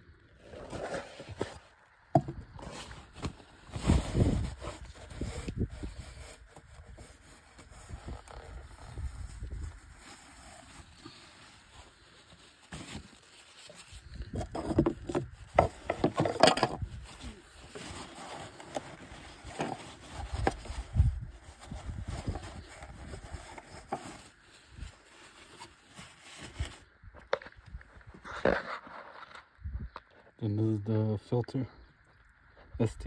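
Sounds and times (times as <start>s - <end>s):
rag scraping inside housing: 12.3s - 29.5s.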